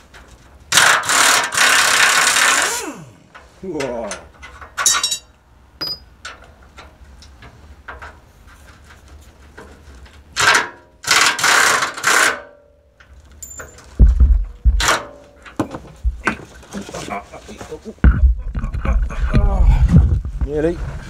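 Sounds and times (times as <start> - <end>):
air tool bursts: 0.7 - 3.2
heavy low thuds: 14.0 - 14.9, 15.7 - 16.4, 18.0 - 21.0.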